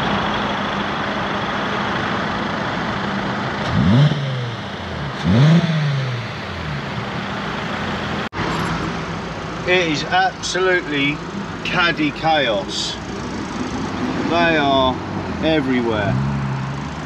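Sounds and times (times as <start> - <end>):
engine revving from idle: 3.5 - 8.3.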